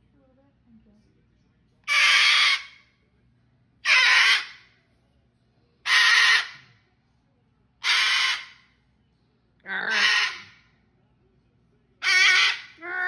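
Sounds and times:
cockatoo screeching: 0:01.9 - 0:02.8, 0:03.8 - 0:04.6, 0:05.8 - 0:06.6, 0:07.8 - 0:08.6, 0:09.7 - 0:10.6, 0:12.0 - 0:13.0.

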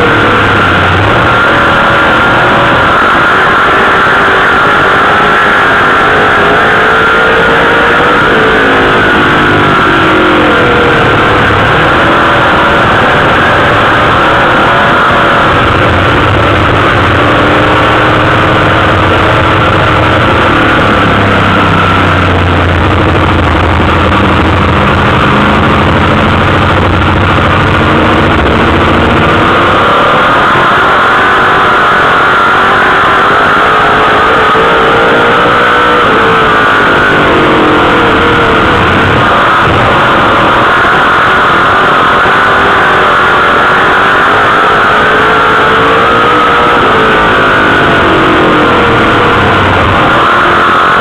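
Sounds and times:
race car engine revving: 0:00.0 - 0:51.0.

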